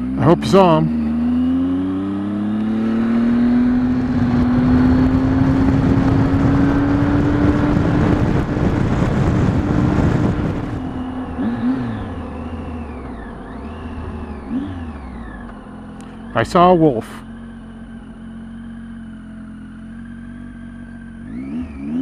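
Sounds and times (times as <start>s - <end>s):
motorcycle engine accelerating: 0.0s - 22.0s
wind rushing over microphone: 2.7s - 15.1s.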